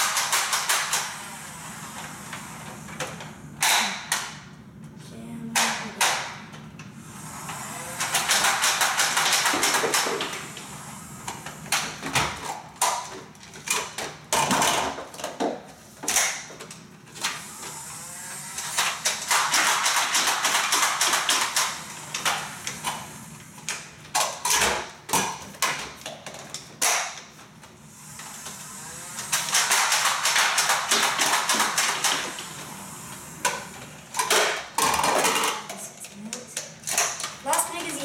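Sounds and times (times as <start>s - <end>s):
toy blaster firing bursts: 8.0s - 10.3s, 18.5s - 22.4s, 29.1s - 32.4s.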